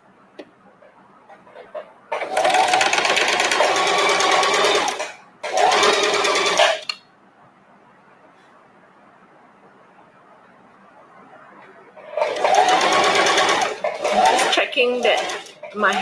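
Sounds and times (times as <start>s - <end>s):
sewing machine stitching: 2.1s - 6.9s, 12.0s - 16.0s.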